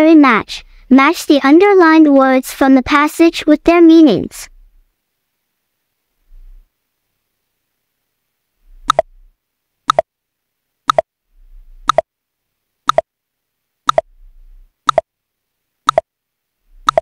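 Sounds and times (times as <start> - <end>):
timer ticking: 8.8 - 9.1, 9.9 - 10.1, 10.9 - 11.1, 11.8 - 12.1, 12.9 - 13.1, 13.9 - 14.1, 14.8 - 15.1, 15.9 - 16.1.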